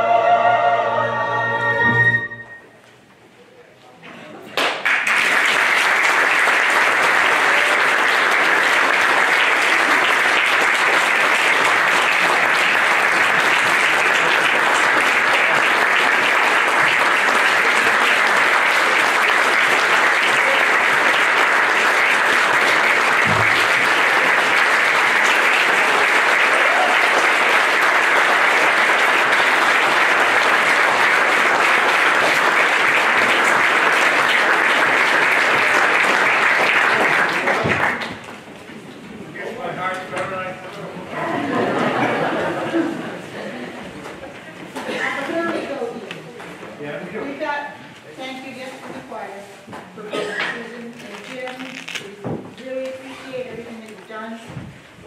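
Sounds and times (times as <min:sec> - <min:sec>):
audience applauding: 0:04.6 - 0:38.6.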